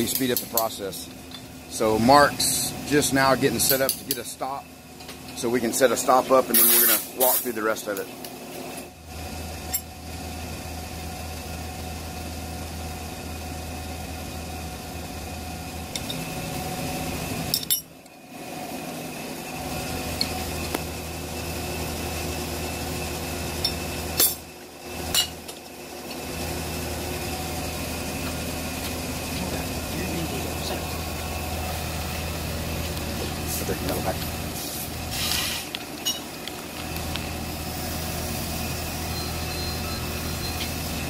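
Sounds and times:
shop machinery hum: 0.0s - 41.0s
metallic clinks of tools: 17.5s - 17.9s.

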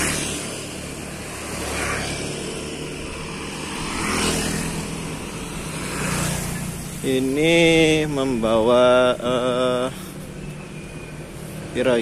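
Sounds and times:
motor scooters passing: 0.0s - 12.0s
low engine rumble: 6.4s - 12.0s.

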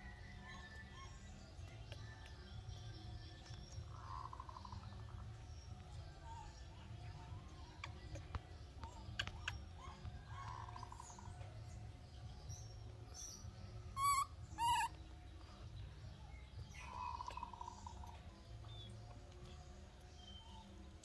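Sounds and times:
baby monkey high calls: 14.0s - 15.0s.

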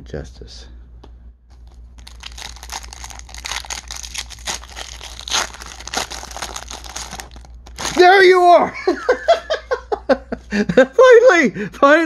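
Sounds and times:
foil wrapper tearing: 1.5s - 8.2s
foil wrapper crackling: 1.5s - 8.3s.

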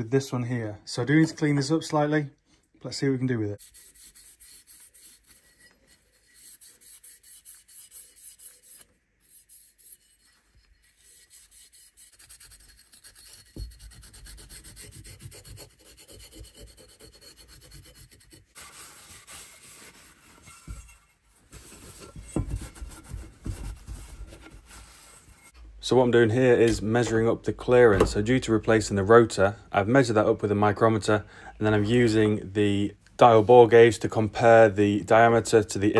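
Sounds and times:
scouring pad rasping on metal: 3.6s - 21.2s
rag wiping casing: 3.6s - 25.6s
low knocks of handling: 27.9s - 28.3s.

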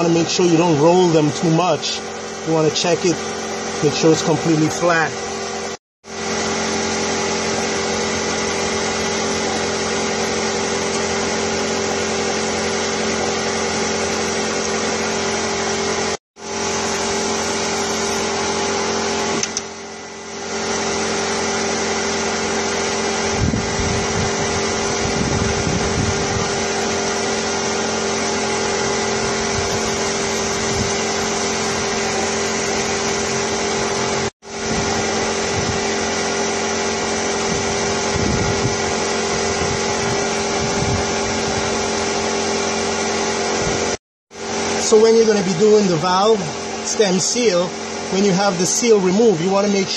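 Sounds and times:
motor humming: 0.0s - 49.9s
low rumbling: 23.2s - 36.0s.

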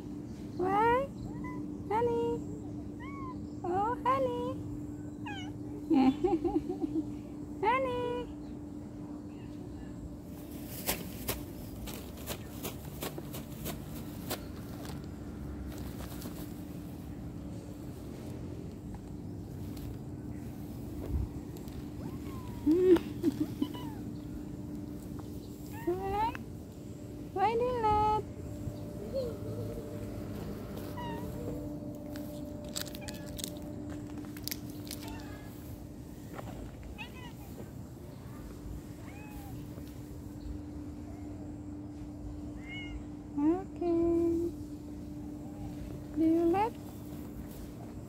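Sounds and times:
steady low hum: 0.0s - 48.0s
cat chirping meows: 1.3s - 1.7s, 3.0s - 3.4s, 5.2s - 5.6s, 22.0s - 22.7s, 23.6s - 24.2s, 37.0s - 37.6s, 39.0s - 39.6s, 42.6s - 43.1s
footsteps crunching on gritty asphalt: 10.4s - 16.8s, 29.8s - 37.8s.

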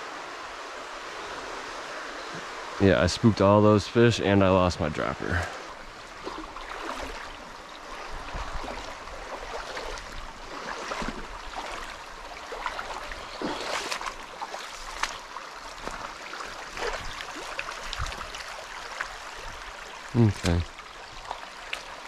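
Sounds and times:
creek water babbling over stones: 0.0s - 22.0s
small water splashes: 5.2s - 22.0s.

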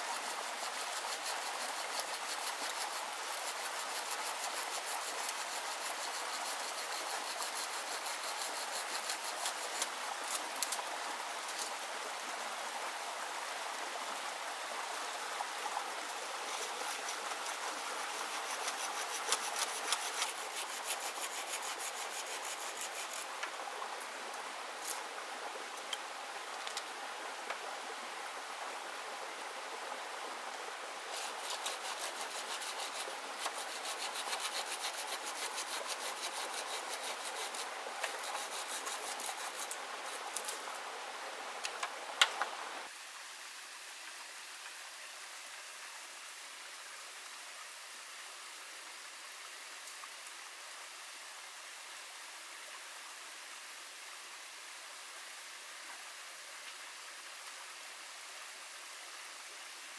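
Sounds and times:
hand saw cutting bamboo: 0.0s - 10.8s, 16.4s - 23.3s, 31.1s - 40.6s.

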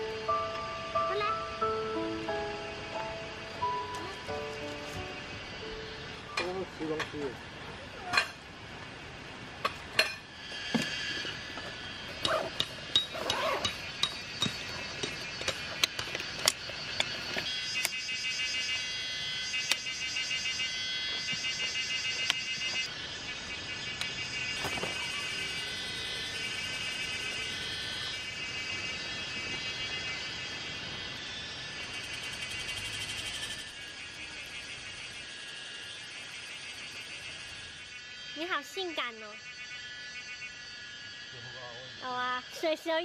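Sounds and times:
steady pulsing high sound: 0.0s - 43.0s
camp chair clicks and knocks: 12.3s - 17.5s.

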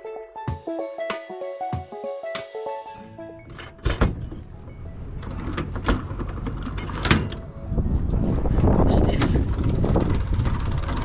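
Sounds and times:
hand crank grinding rattle: 9.2s - 11.0s.

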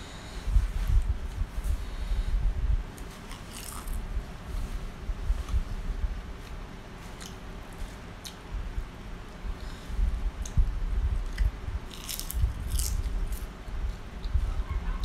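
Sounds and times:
chewing and crunching: 3.0s - 4.0s, 11.2s - 13.5s.

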